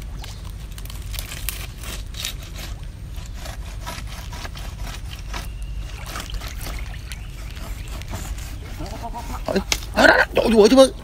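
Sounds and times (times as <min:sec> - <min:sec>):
rasping scraping on wood: 0:01.8 - 0:09.8.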